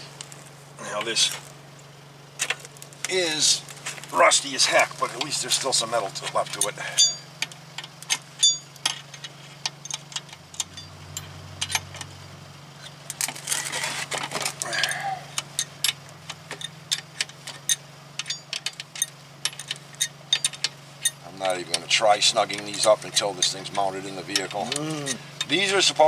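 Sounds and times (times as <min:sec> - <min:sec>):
steady low hum: 0:00.0 - 0:26.0
metal tools and bolts clinking: 0:04.6 - 0:12.1, 0:12.8 - 0:21.9.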